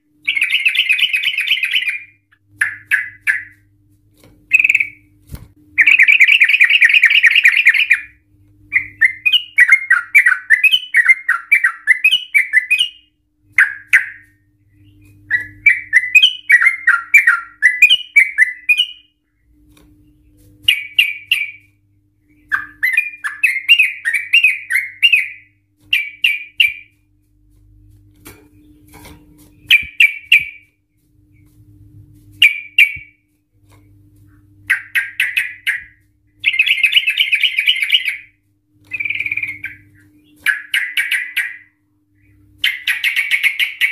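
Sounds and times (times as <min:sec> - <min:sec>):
bird singing trills: 0:00.2 - 0:03.7, 0:04.5 - 0:05.1, 0:05.8 - 0:27.0, 0:29.5 - 0:30.7, 0:32.4 - 0:33.2, 0:34.6 - 0:43.9.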